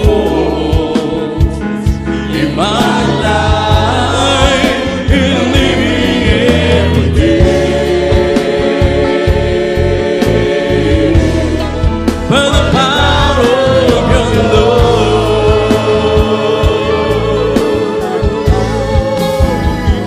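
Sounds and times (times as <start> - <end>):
live gospel band playing: 0.0 - 20.0
people singing: 0.0 - 20.0
flute: 16.2 - 20.0.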